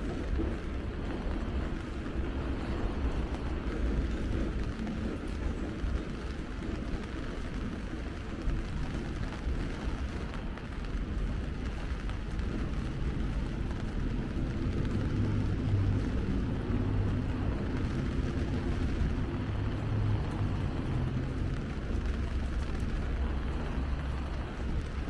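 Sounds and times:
engine drone: 0:00.0 - 0:25.0
traffic on wet streets: 0:00.0 - 0:25.0.

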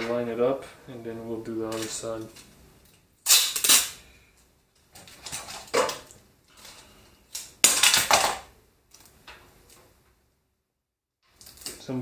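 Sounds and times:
adhesive tape ripping off roll: 0:03.2 - 0:04.0.

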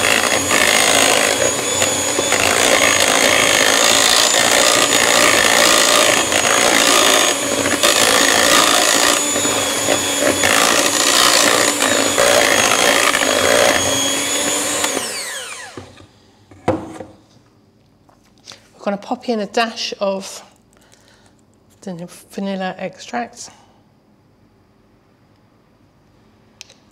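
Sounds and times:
electric hand mixer whining: 0:00.0 - 0:16.2.

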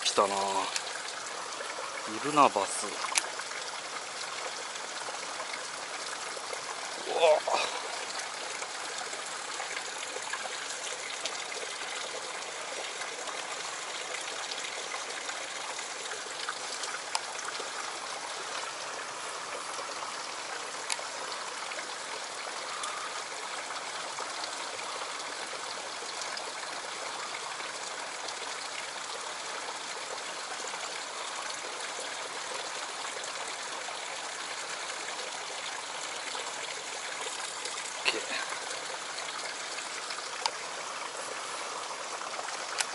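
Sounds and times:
stream rushing over rocks: 0:00.0 - 0:42.9.

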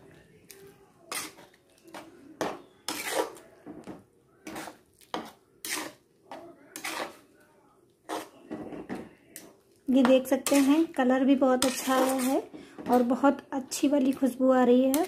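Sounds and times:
spoon scraping a metal pan: 0:01.1 - 0:03.5, 0:04.4 - 0:07.3, 0:08.1 - 0:08.6, 0:09.4 - 0:15.0.

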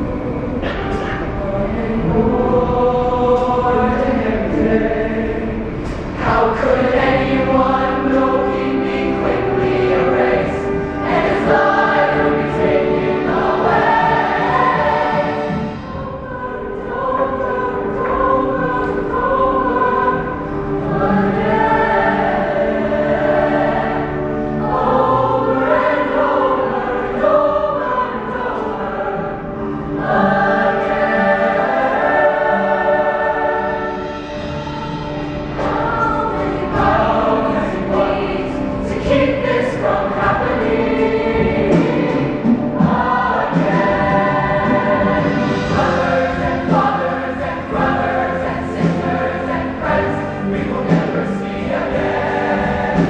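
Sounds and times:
choir singing held chords: 0:00.0 - 0:53.0.

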